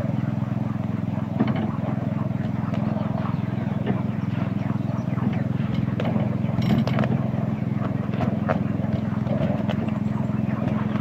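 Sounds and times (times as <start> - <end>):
petrol engine running: 0.0 - 11.0
wheels clicking on track: 4.8 - 11.0.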